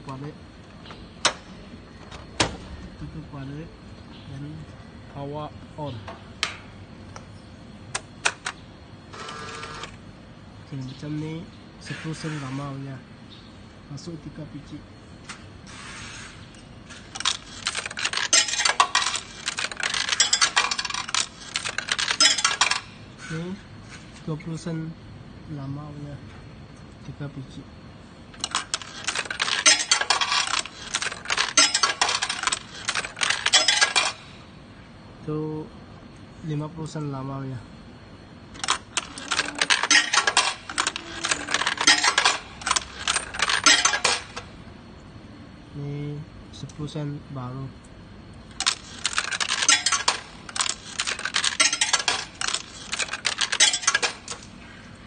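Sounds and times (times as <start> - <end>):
coins clinking through coin changer: 9.2 - 9.9, 17.1 - 22.9, 28.4 - 34.3, 38.6 - 44.5, 48.5 - 54.5.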